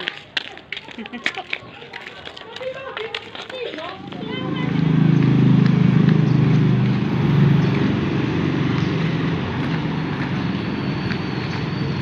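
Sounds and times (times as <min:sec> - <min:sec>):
street traffic hum: 0:00.0 - 0:12.0
motorcycle engine running: 0:04.0 - 0:11.7.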